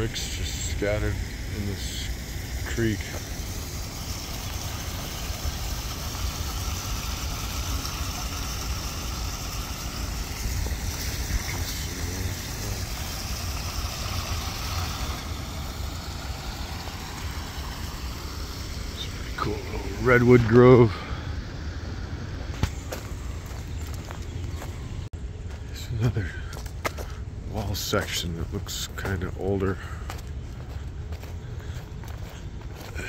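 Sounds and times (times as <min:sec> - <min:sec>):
water running over rocks: 0:00.0 - 0:21.0
steady low rumble: 0:00.0 - 0:33.0.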